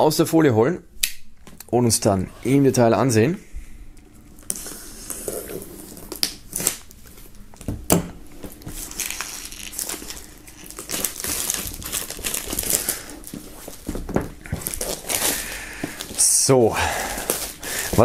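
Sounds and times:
plastic wrap crinkling and tearing: 4.4 - 7.4, 8.4 - 18.0.

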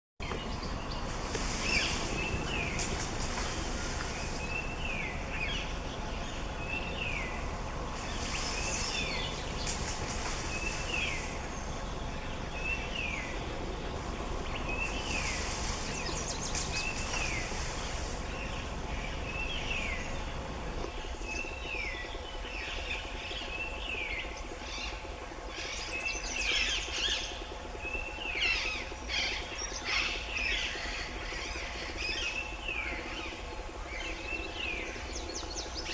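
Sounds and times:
bird chirping: 0.2 - 35.9
high hissing buzz: 0.3 - 21.8.

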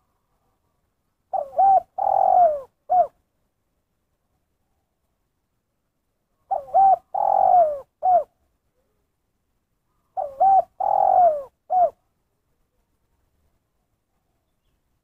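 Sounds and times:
dove cooing: 1.3 - 3.2, 6.4 - 9.0, 10.1 - 12.0.

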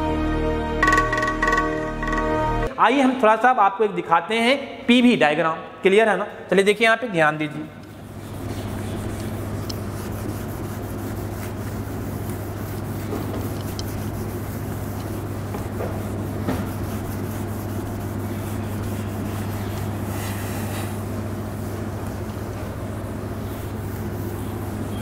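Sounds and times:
steady low hum: 7.6 - 25.0
duster rubbing on whiteboard: 7.9 - 25.0.

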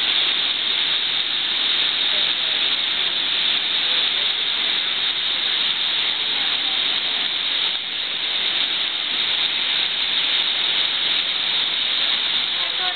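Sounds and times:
river rapids rushing: 0.0 - 12.9.

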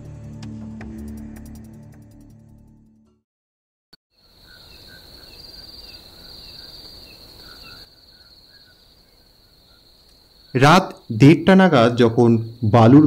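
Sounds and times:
crickets trilling: 4.2 - 13.0.

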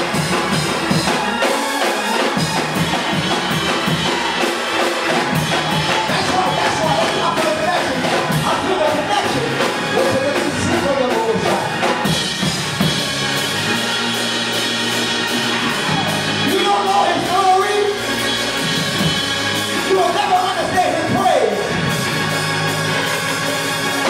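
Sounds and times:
keyboard sustained chords: 0.0 - 24.0
man preaching in chanting cadence: 16.4 - 18.0, 19.8 - 21.7.

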